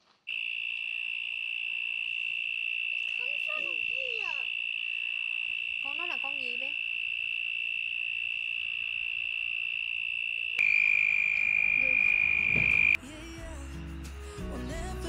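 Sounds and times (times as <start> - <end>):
cricket trilling: 0.3 - 13.0
soft music: 13.0 - 15.0.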